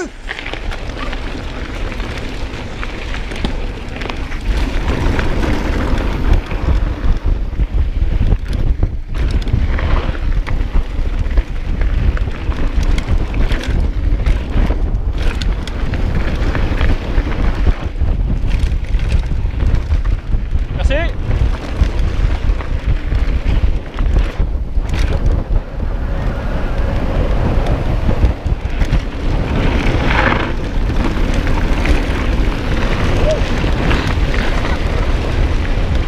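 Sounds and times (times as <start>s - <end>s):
bike rattling: 0.0s - 36.0s
wind buffeting microphone: 0.0s - 36.0s.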